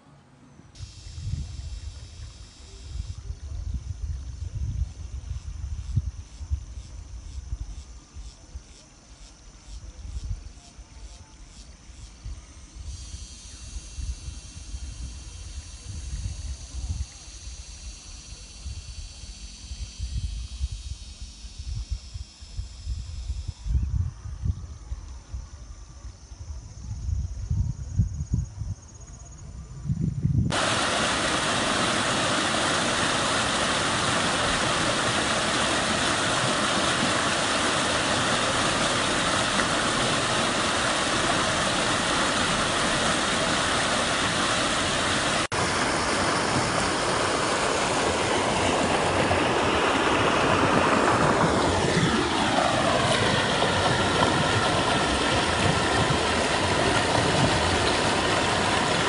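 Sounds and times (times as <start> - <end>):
stream rushing over boulders: 30.5 - 59.0.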